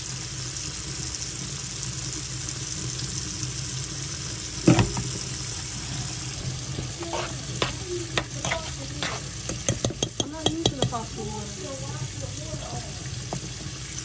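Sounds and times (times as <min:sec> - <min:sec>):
tap water running into sink: 0:00.0 - 0:14.0.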